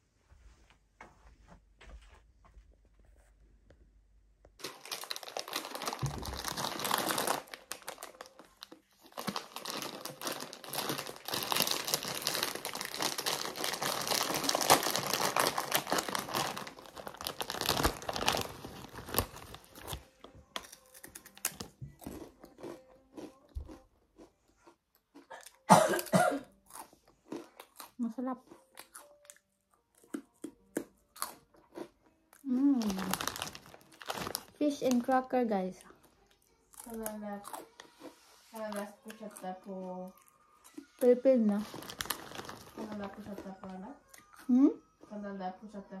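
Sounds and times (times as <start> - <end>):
plastic snack bag crinkling: 4.6 - 23.3, 32.5 - 43.8
cracker crunch: 4.6 - 35.2, 35.8 - 39.4, 40.1 - 44.5.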